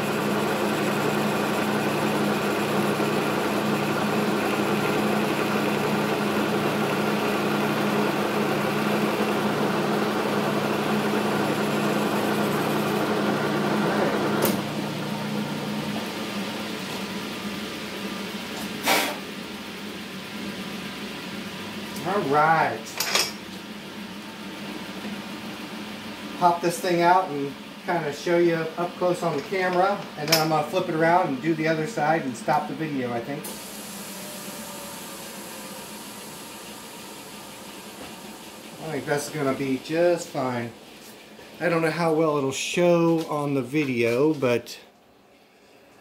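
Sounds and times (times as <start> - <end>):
metal lathe running: 0.0 - 18.6, 28.4 - 40.9.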